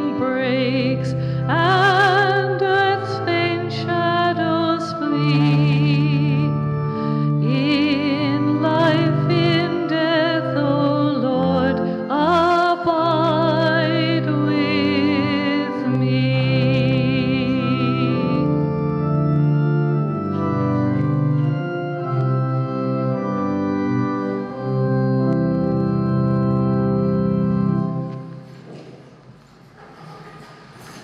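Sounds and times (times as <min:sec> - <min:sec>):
person singing with vibrato: 0:00.0 - 0:19.0
church organ chords: 0:00.0 - 0:28.8.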